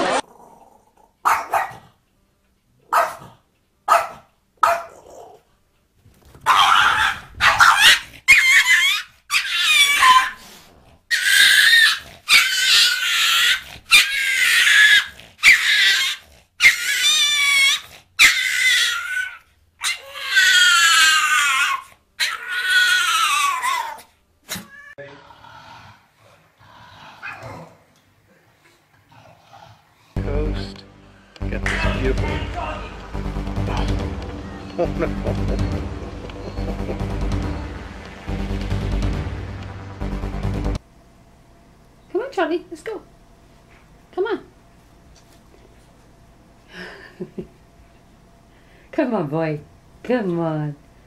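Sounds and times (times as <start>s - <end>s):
small dog barking: 1.2s - 1.9s, 2.9s - 5.4s, 6.4s - 10.4s.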